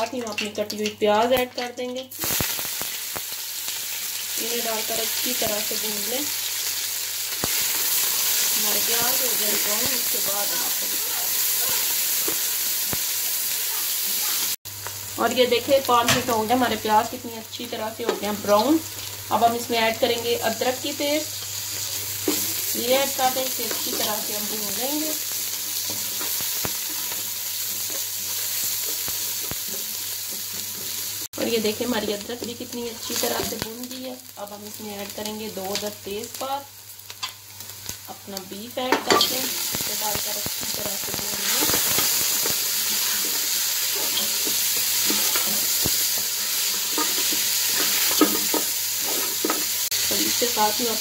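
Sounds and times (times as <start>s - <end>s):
onions sizzling in hot oil: 0.0s - 51.0s
spatula tapping and scraping pan: 43.9s - 49.7s.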